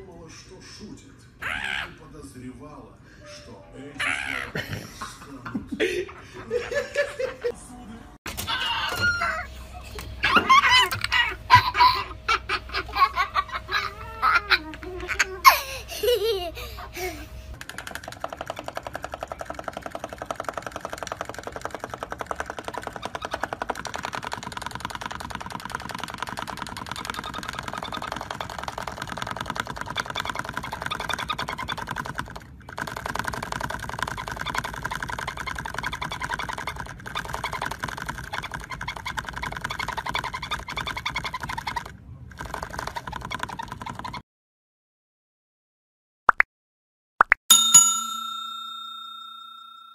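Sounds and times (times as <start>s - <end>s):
parrot making rapid clicks: 17.6s - 44.2s.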